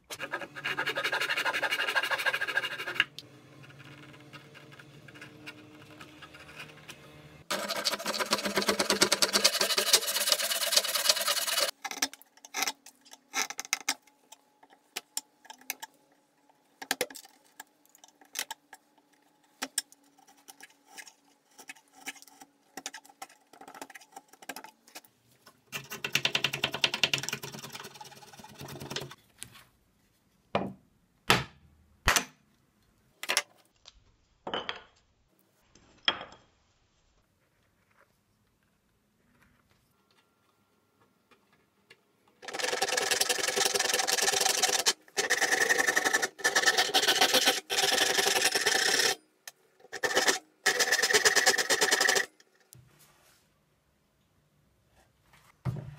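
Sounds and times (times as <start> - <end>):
fast wood scraping: 0.1 - 11.8, 42.4 - 49.2, 49.9 - 52.3.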